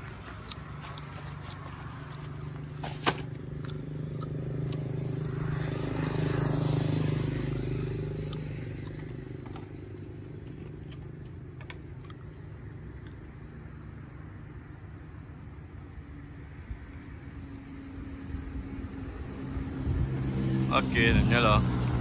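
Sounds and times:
vehicle engine passing: 0.0s - 15.4s, 16.4s - 22.0s
small ticks: 3.6s - 5.0s, 8.2s - 9.6s.

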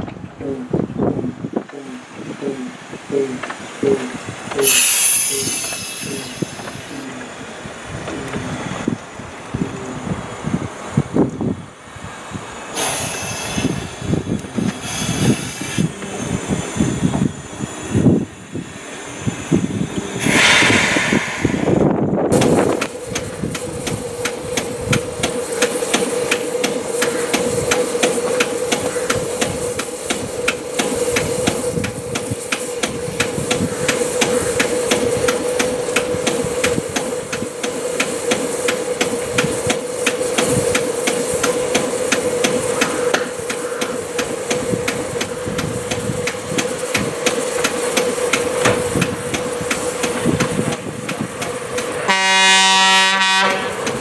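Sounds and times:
diesel locomotive engine knocking: 0.0s - 9.2s, 12.8s - 17.4s, 19.4s - 54.0s
locomotive horn: 52.0s - 53.9s.

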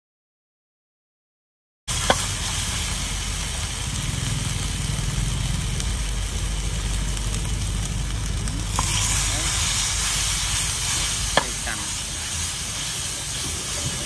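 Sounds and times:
even hiss: 1.9s - 14.0s
low motor rumble: 1.9s - 14.0s
paste frying in a pan: 1.9s - 14.0s
metal spatula stirring: 8.4s - 14.0s.

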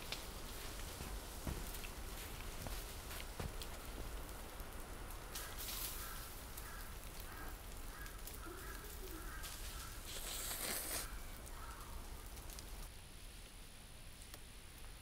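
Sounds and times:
crow cawing: 5.4s - 10.2s, 11.0s - 12.0s
noodles being slurped: 10.1s - 11.1s.

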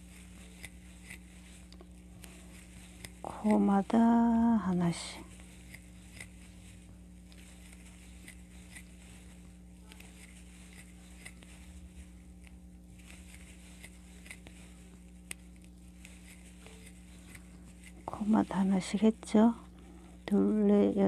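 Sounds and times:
steady low hum: 0.0s - 21.0s
crochet hook clicking yarn: 1.8s - 4.5s.

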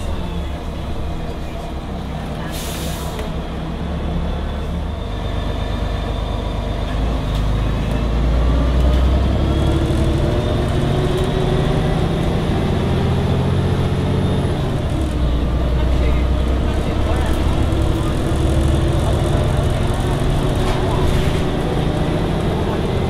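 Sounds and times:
diesel bus engine accelerating: 0.0s - 23.0s.

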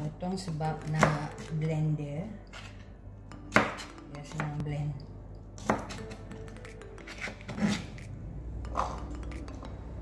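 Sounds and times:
background music: 0.0s - 10.0s
knife cutting on plastic board: 5.6s - 8.1s.

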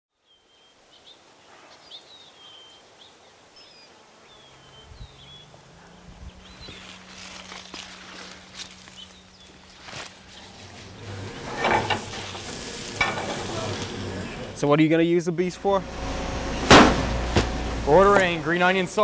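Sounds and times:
small birds chirping: 0.1s - 11.1s
low steady hum: 4.4s - 19.0s
rustling of leafy plants pulled: 6.0s - 14.6s.

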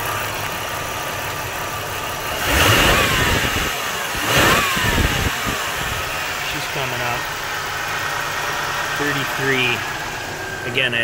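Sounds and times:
car engine idling: 0.0s - 11.0s
engine revving: 2.2s - 11.0s.

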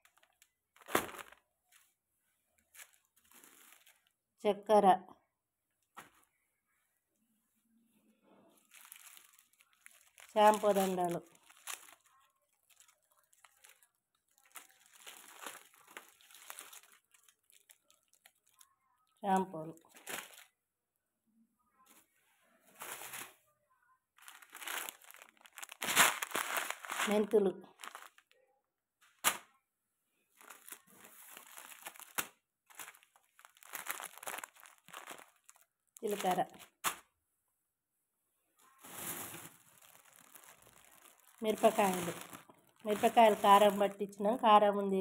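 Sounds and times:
plastic packets crinkling: 0.0s - 1.9s, 2.6s - 4.2s, 8.6s - 18.7s, 19.8s - 20.6s, 22.7s - 23.4s, 24.2s - 28.4s, 30.4s - 37.0s, 38.7s - 44.2s.

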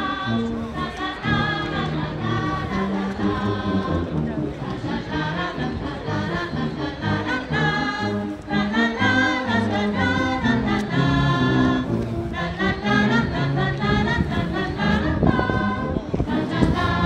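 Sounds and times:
wind band playing: 0.0s - 17.0s.

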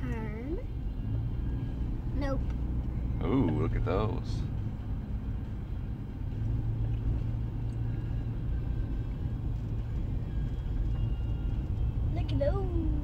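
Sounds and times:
car engine rumble from inside cabin: 0.0s - 13.0s
road noise: 0.0s - 13.0s.

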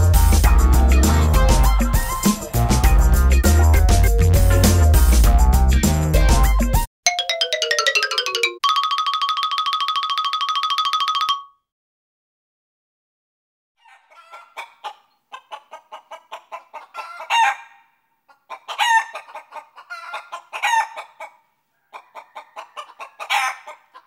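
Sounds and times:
chicken clucking and squawking: 13.8s - 24.0s.

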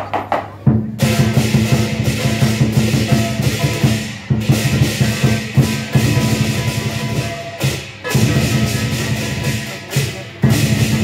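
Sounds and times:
large drum beating fast: 0.1s - 11.0s
cymbals clashing: 0.5s - 11.0s.

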